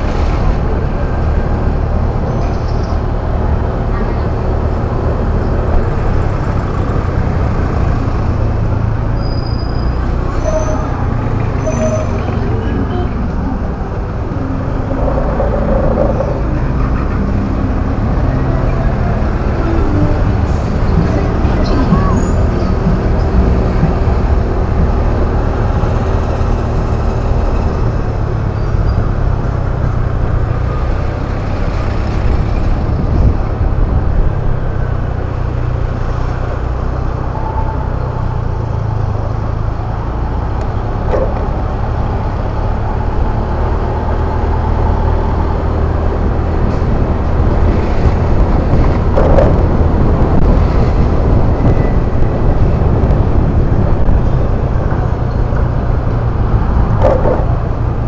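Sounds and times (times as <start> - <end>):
road and traffic noise: 0.0 - 58.0.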